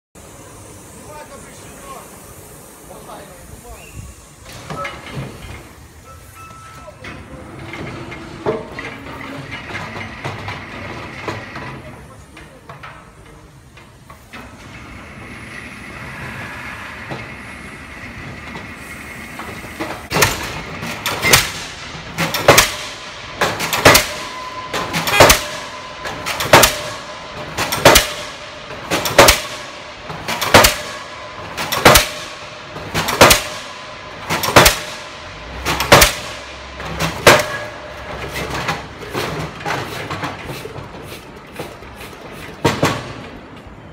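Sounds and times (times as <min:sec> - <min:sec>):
pile driving machine running: 0:06.8 - 0:43.9
pile hammer blows: 0:18.2 - 0:43.4.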